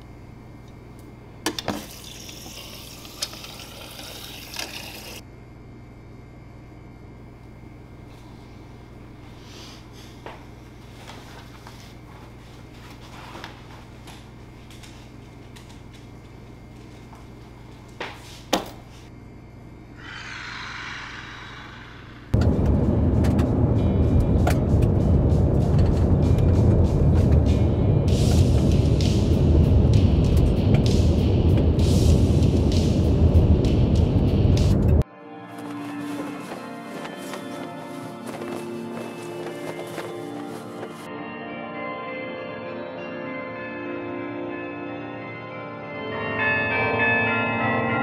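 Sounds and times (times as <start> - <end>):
low steady hum: 0.0 - 35.0
water filling a container: 1.8 - 5.2
car driving on a highway: 22.4 - 28.4.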